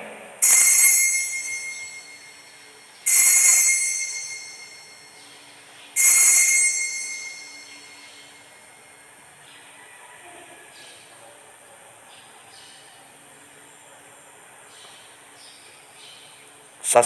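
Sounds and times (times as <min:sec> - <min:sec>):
altar bells ringing: 0:00.4 - 0:09.2.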